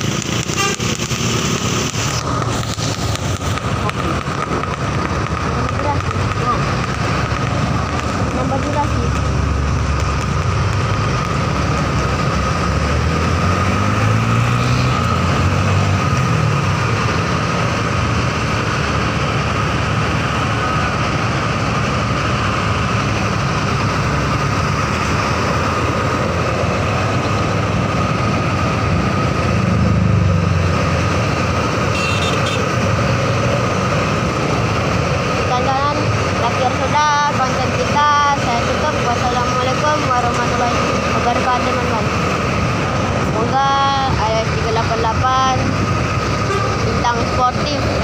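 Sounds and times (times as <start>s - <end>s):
vehicle engines and road noise: 0.0s - 48.0s.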